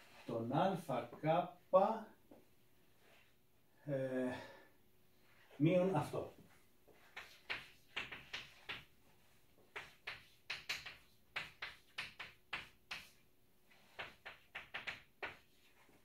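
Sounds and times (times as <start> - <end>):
chalk tapping and scratching: 6.9 - 16.0.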